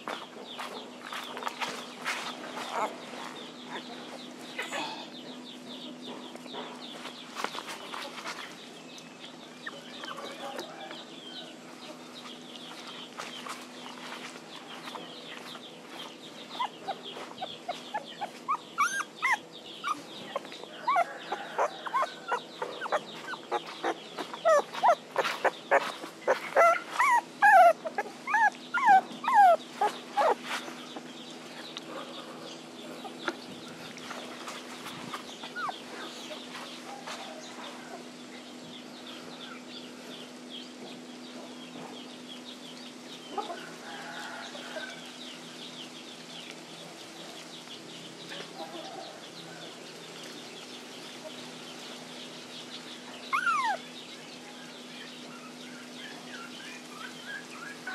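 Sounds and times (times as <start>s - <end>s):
puppies whimpering and crying: 1.7s - 4.9s, 9.6s - 38.1s, 53.0s - 54.2s, 54.8s - 57.9s.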